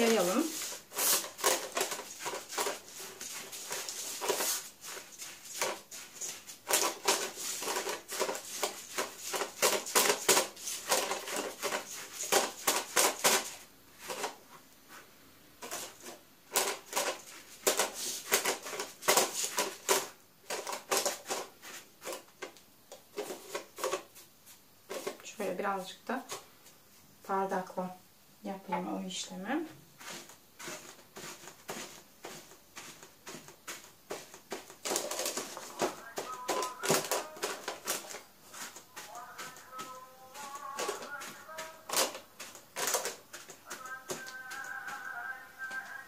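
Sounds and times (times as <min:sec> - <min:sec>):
spatula tapping and scraping pan: 0:30.0 - 0:46.0.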